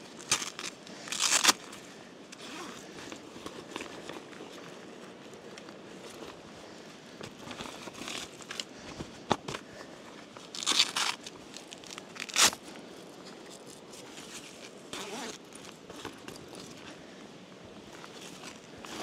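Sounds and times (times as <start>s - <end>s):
velcro ripping: 0.2s - 1.6s, 10.5s - 12.6s, 14.9s - 15.5s.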